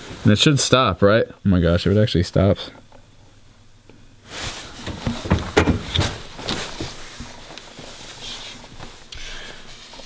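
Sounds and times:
shuffling footsteps: 4.3s - 9.1s
knocks and clatter: 4.8s - 6.9s.

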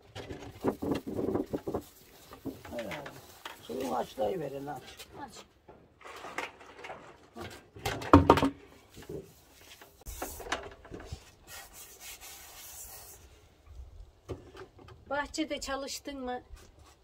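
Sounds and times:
water pouring and splashing: 0.0s - 5.0s, 5.7s - 13.2s.

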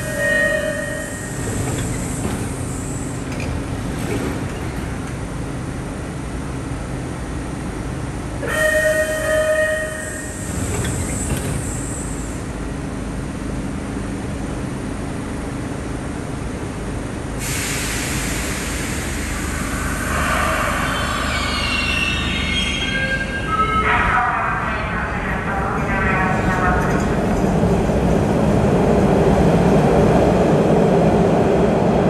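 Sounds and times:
train horn blast: 0.0s - 1.2s, 8.4s - 10.3s
subway train rumbling: 0.0s - 32.0s
hiss of air: 17.4s - 21.6s
wheel squeal: 20.0s - 23.5s.

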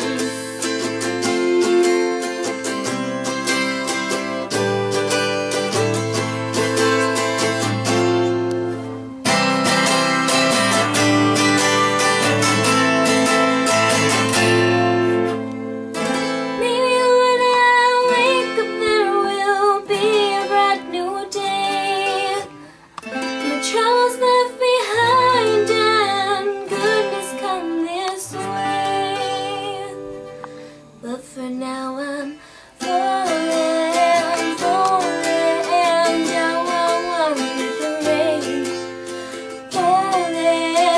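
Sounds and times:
woman singing: 0.0s - 4.4s, 16.5s - 40.9s
acoustic guitar strummed: 0.0s - 40.9s.

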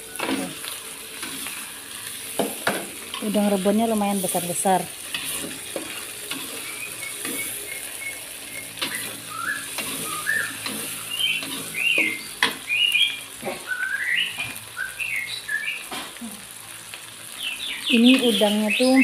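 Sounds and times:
paste sizzling in a wok: 0.0s - 19.0s
metal spatula scraping a wok: 5.0s - 7.6s, 8.8s - 12.5s
bird chirping: 6.6s - 15.8s.

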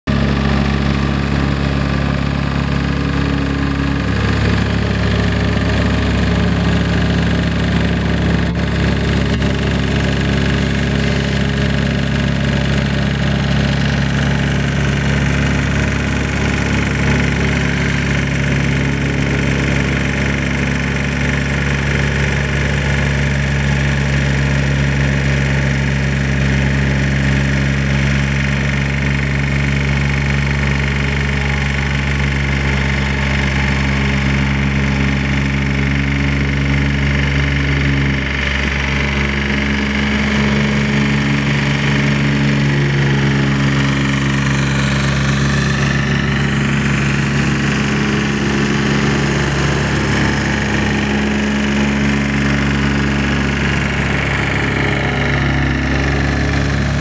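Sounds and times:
plate compactor engine running: 0.0s - 57.0s
diesel engine idling: 0.1s - 57.0s.

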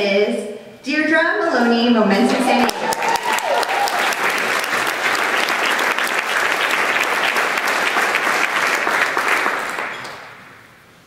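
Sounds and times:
audience applauding: 2.6s - 10.7s.

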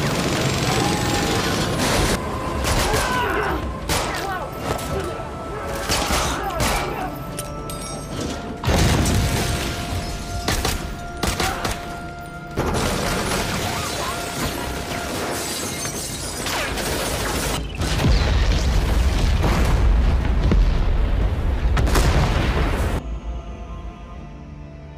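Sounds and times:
trailer music: 0.0s - 16.0s, 19.1s - 24.9s
glass shattering: 12.7s - 17.8s
explosive booms: 17.8s - 23.0s.

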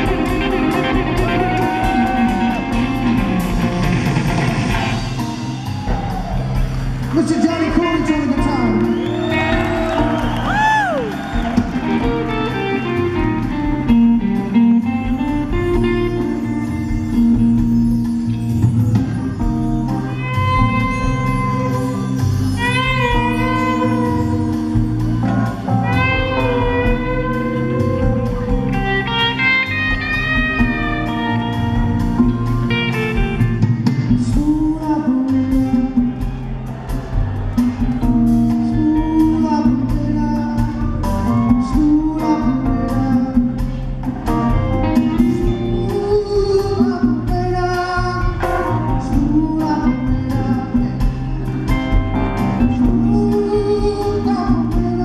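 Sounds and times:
band playing soul music: 0.0s - 55.0s
person singing: 34.1s - 36.6s, 38.4s - 51.6s, 52.3s - 55.0s.

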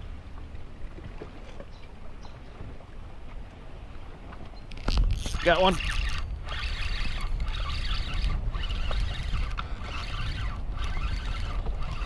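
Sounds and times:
wind rumble: 2.0s - 12.0s
fishing reel whirring: 4.7s - 12.0s.

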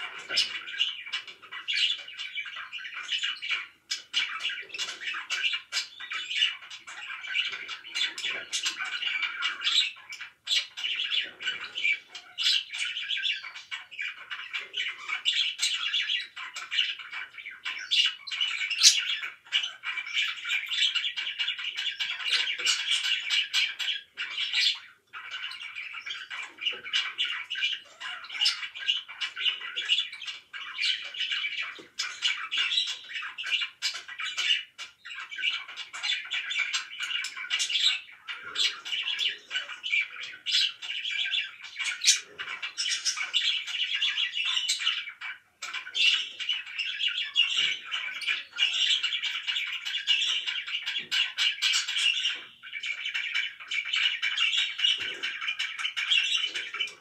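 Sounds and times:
budgerigars chirping and squawking: 0.0s - 57.0s.

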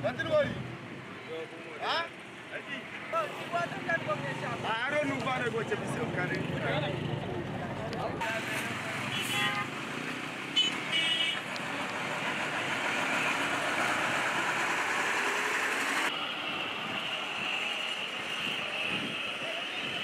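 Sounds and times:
street traffic: 0.0s - 20.0s
car horn toots: 10.6s - 11.4s.

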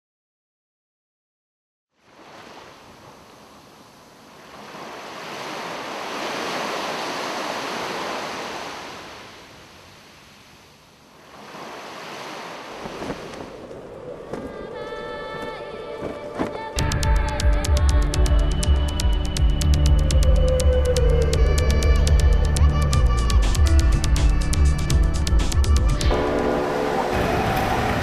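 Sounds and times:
ocean waves washing in: 2.0s - 16.7s, 26.1s - 28.0s.

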